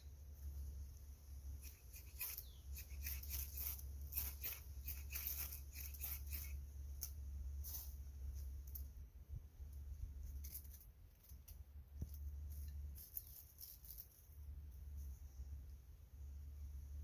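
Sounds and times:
blade rasping on fire steel rod: 1.6s - 6.6s.

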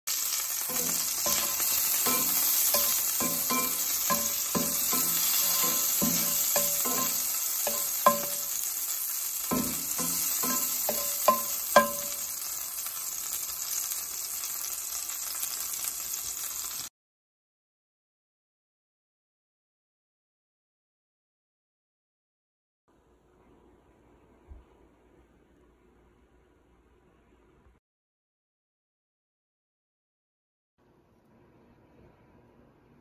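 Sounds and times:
frying in oil sizzling: 0.1s - 16.9s
spatula knocking and scraping pan: 0.3s - 8.6s, 9.4s - 12.3s.

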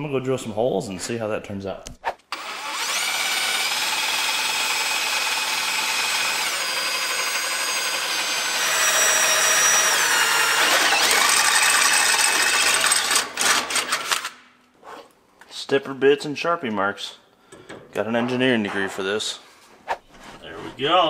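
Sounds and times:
drill cutting metal: 2.4s - 14.2s.

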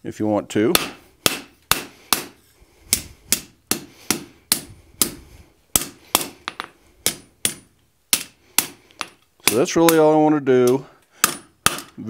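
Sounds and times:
hammer striking steel on anvil: 0.7s - 5.2s, 5.8s - 10.0s.

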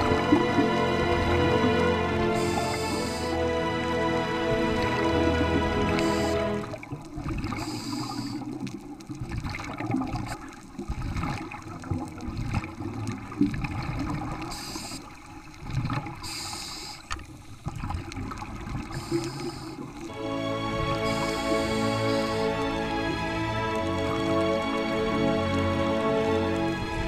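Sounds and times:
low underwater water noise: 0.0s - 27.0s
bubbling hiss of exhaled breath: 2.3s - 3.5s, 5.8s - 8.8s, 14.1s - 15.3s, 16.1s - 17.7s, 18.4s - 23.2s.

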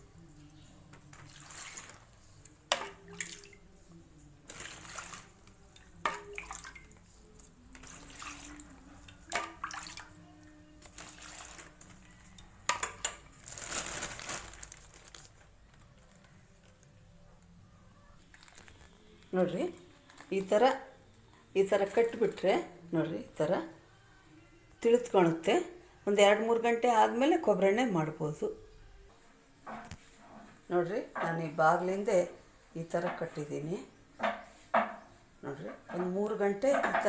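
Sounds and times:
liquid pouring into plastic bag: 1.0s - 3.5s, 4.5s - 6.9s, 7.6s - 10.2s, 10.8s - 12.1s, 13.1s - 16.3s, 18.3s - 18.9s.

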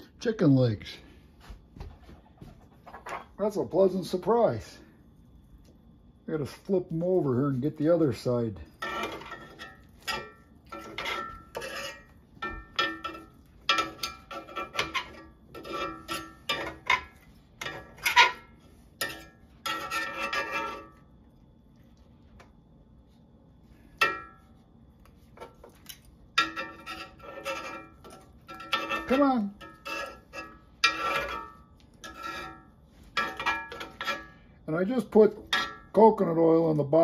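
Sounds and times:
utensils clinking on a skillet: 8.1s - 21.0s, 23.9s - 24.6s, 25.3s - 37.0s.

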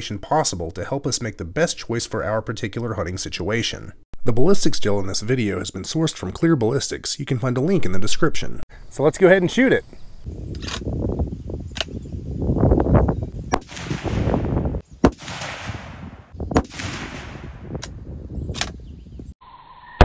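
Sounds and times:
wind rumble on microphone: 9.9s - 19.4s
rifle shots: 13.6s - 17.8s.

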